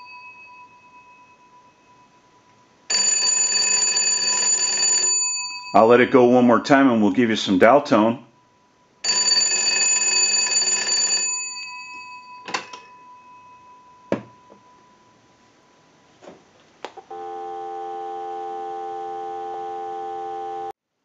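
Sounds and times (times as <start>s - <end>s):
telephone bells ringing: 0.0s - 1.8s, 2.9s - 6.2s, 9.0s - 14.6s
dial tone: 17.1s - 20.8s.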